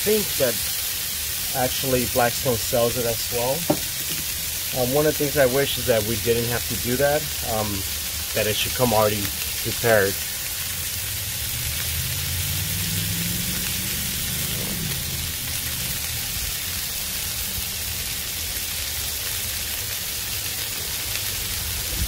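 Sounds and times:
patties sizzling on a griddle: 0.0 - 22.0.

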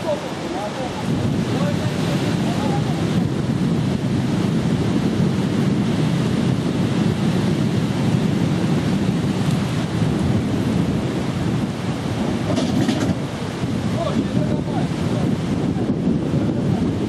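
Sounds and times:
sea surf: 0.0 - 17.0
wind buffeting microphone: 0.0 - 17.0.

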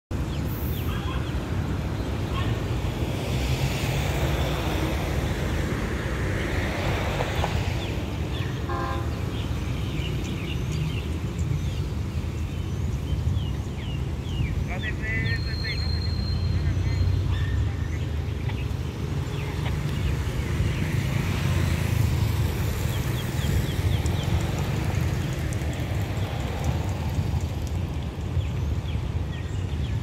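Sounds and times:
low traffic rumble: 0.1 - 30.0
vehicle passing: 1.0 - 12.4, 14.0 - 29.3
bird chirps: 8.4 - 18.7.

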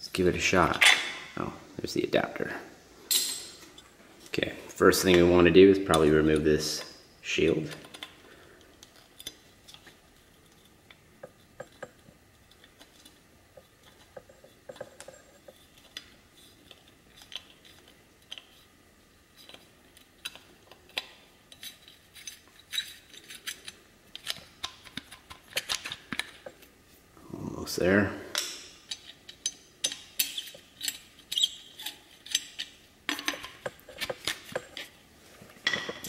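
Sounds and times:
screwdriver clicking and scraping metal: 19.4 - 26.5, 28.4 - 35.0.

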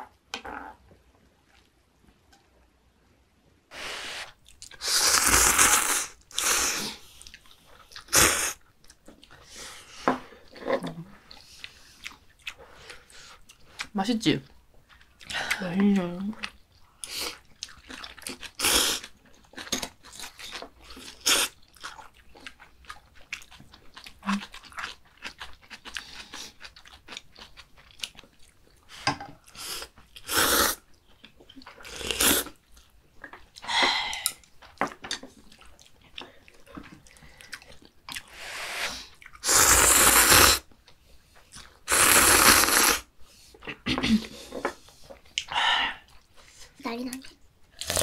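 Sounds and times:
people slurping noodles: 3.7 - 7.1, 29.6 - 30.8, 31.8 - 32.6, 38.2 - 40.7, 41.9 - 44.8
chewing: 6.3 - 13.9, 14.8 - 38.4, 39.0 - 39.4, 40.7 - 41.9.

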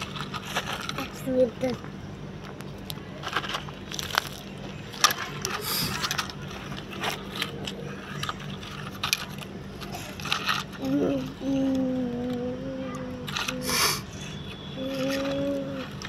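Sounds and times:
toy excavator scraping over gravel: 0.0 - 1.8, 3.2 - 12.5, 13.1 - 16.0
clicks of stones and plastic: 2.4 - 11.0.

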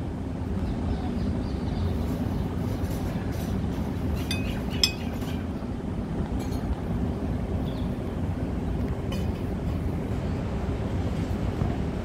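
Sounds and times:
urban background rumble: 0.0 - 12.0
light clinks: 4.2 - 5.3.

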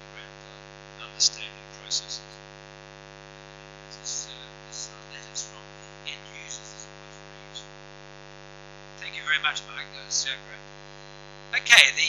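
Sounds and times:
faint hissy sounds: 0.0 - 2.4, 3.5 - 7.7
electrical mains hum: 0.0 - 12.0.

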